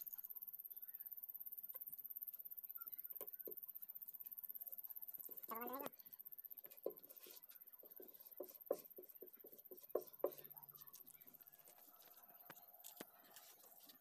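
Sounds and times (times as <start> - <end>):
squeegee scratching on sticker: 6.6 - 14.0.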